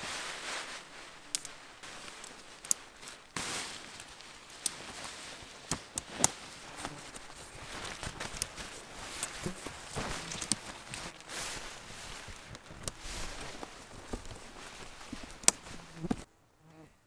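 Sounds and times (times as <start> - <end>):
tent fabric rustling: 0.0 - 16.3
tent poles clicking and tapping: 0.0 - 16.3.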